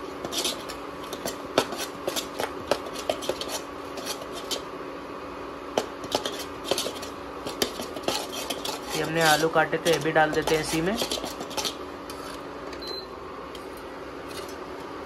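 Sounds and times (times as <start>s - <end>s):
metal spoon scraping a pan: 0.0s - 4.7s, 5.8s - 12.5s.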